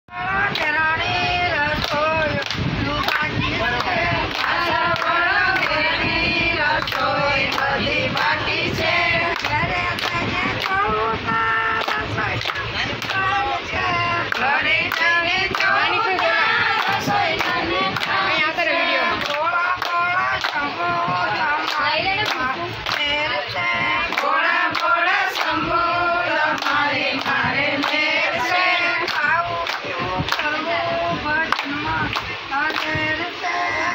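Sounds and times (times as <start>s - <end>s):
women singing together: 0.1s - 33.9s
hands clapping in time: 0.5s - 0.8s, 1.8s - 5.8s, 6.8s - 8.4s, 9.3s - 10.9s, 11.7s - 13.3s, 14.3s - 18.2s, 19.2s - 25.6s, 26.5s - 33.3s.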